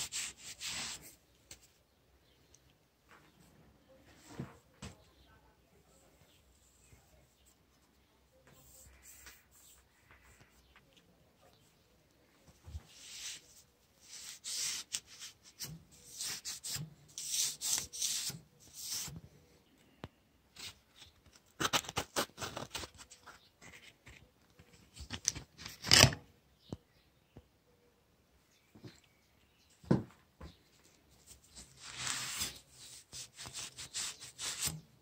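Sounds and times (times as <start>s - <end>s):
sandpaper scraping steel blade: 14.0s - 19.1s.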